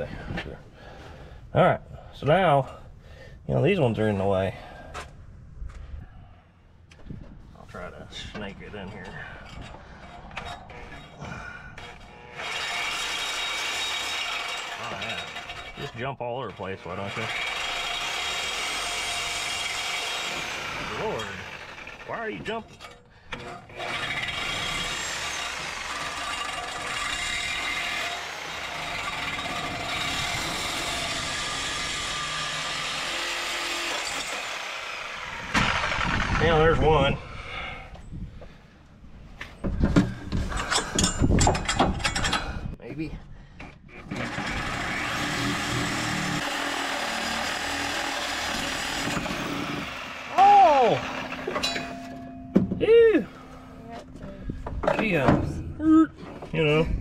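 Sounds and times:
reciprocating saw cutting: 10.2 - 37.0, 44.0 - 52.2
power tool running: 11.7 - 15.8, 16.6 - 36.8, 44.0 - 52.4.

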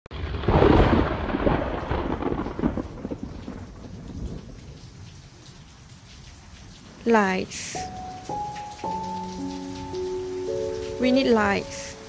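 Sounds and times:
thunder rumble: 0.1 - 5.2
rain hissing: 0.2 - 12.0.

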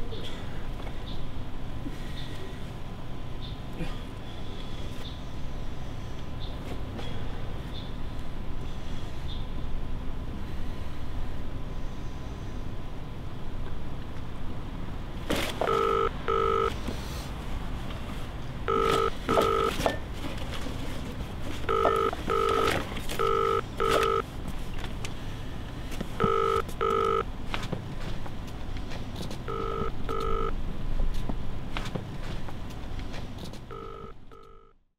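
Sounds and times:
phone ringtone beeps: 15.6 - 16.7, 18.7 - 19.8, 21.7 - 24.2, 26.2 - 27.2, 29.5 - 30.5, 33.7 - 34.8.

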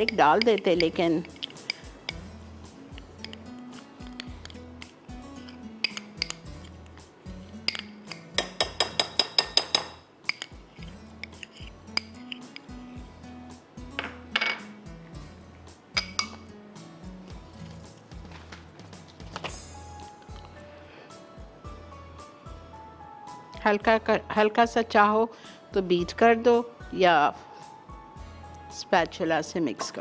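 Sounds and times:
utensil clinking on glass bowl: 0.0 - 2.3, 5.4 - 6.7, 7.6 - 10.6, 16.0 - 16.5
quiet background music: 0.0 - 30.0.

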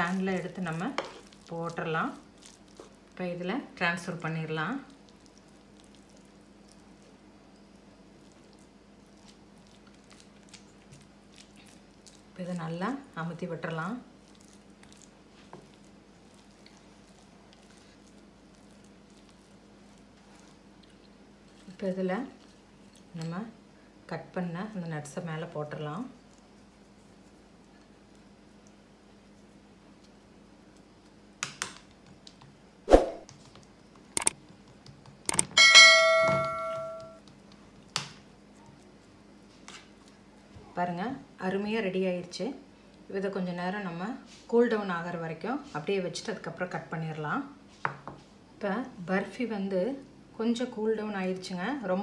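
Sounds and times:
spatula squishing and scraping: 0.0 - 3.2, 4.0 - 23.4, 37.2 - 40.5
bell ding: 35.6 - 37.2.

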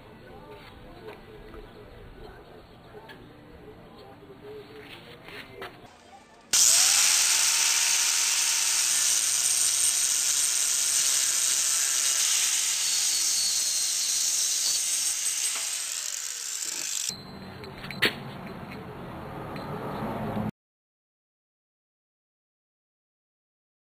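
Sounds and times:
angle grinder cutting metal: 6.5 - 17.1.

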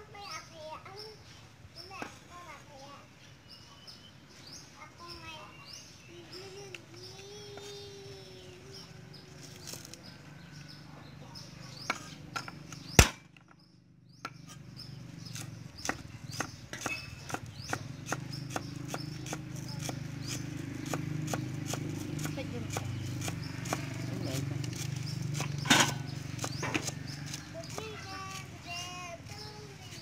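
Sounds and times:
cleaver chopping on wooden board: 11.8 - 13.5, 15.3 - 24.1, 24.7 - 27.8.

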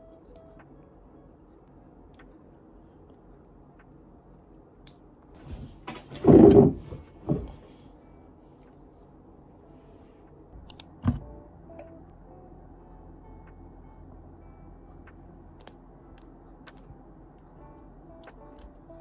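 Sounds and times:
sharp clicks: 10.6 - 11.0.

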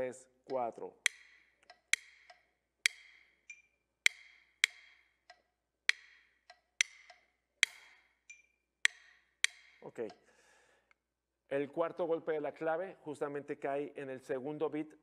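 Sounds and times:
drumsticks clicking together: 0.0 - 10.2
metronome clicks: 0.0 - 10.2.

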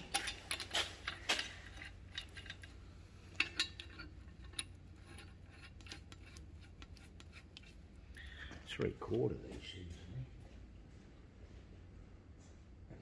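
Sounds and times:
steel parts clinking: 0.0 - 7.8
low steady hum: 0.0 - 13.0.

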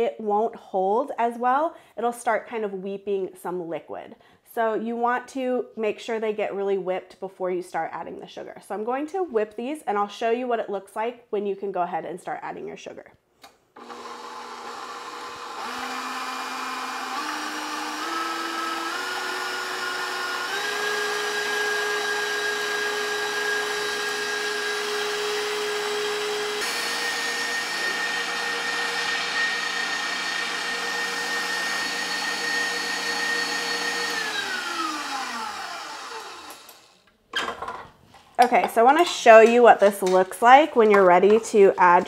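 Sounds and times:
stand mixer motor whine: 13.8 - 37.0.

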